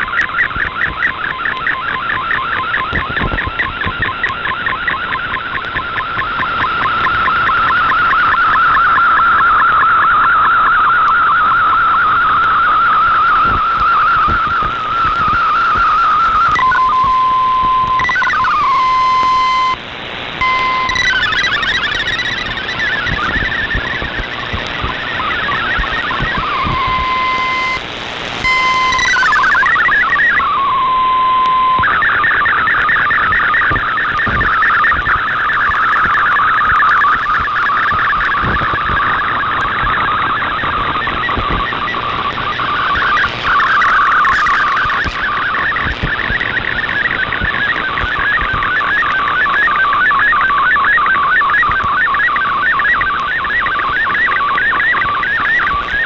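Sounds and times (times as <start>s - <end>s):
data tones warbling: 0.0s - 11.6s, 13.2s - 19.8s, 20.4s - 56.0s
static hiss: 13.3s - 50.5s.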